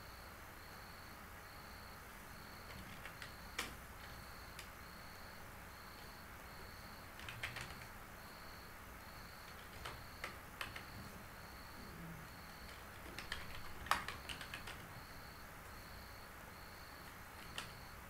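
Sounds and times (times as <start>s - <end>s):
keyboard keystrokes: 2.6s - 4.7s, 7.2s - 7.9s, 9.5s - 11.0s, 12.6s - 14.8s, 17.4s - 17.8s.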